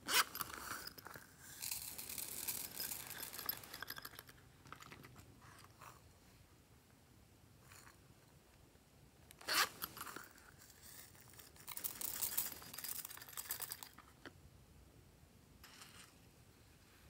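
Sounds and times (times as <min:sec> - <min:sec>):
plastic sequins rattling: 0:00.4 - 0:04.3, 0:10.0 - 0:14.0.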